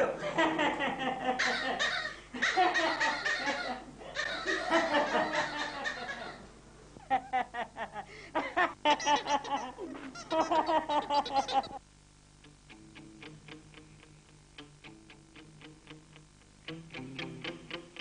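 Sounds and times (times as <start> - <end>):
person laughing: 7.0 - 11.8.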